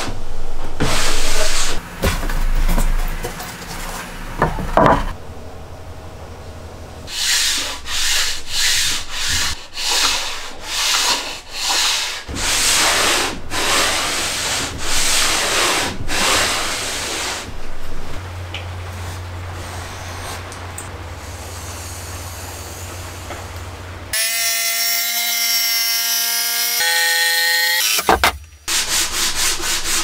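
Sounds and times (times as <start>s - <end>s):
wood rubbing on wood: 7.1s - 17.6s.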